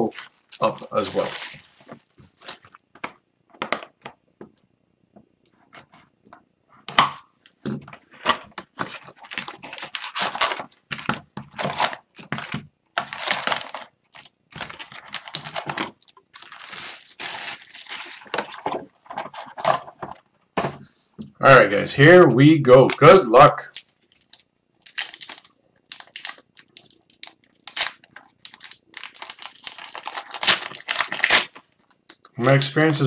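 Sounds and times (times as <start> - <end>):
tearing and crinkling packaging: 0.0 - 2.8, 8.2 - 20.0, 22.8 - 32.8.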